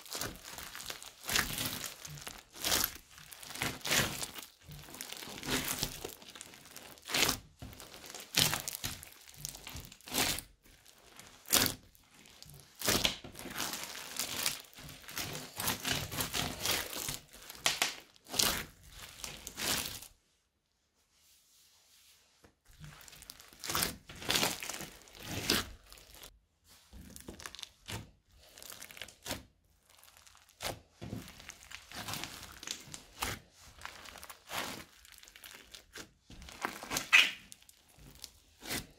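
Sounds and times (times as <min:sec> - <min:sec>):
crunchy slime crackling: 0:00.0 - 0:20.2, 0:22.7 - 0:26.4, 0:27.0 - 0:38.9.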